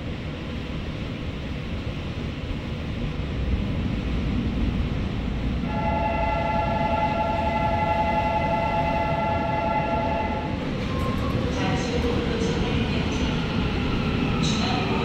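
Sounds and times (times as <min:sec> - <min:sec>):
train rumbling into station: 0:00.0 - 0:15.0
long high-toned horn: 0:05.7 - 0:10.6.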